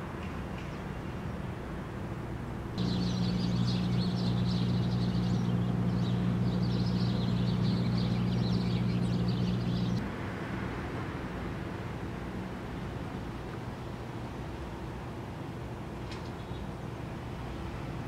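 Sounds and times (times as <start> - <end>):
steady low hum: 0.8 - 18.0
small birds chirping: 2.8 - 10.0.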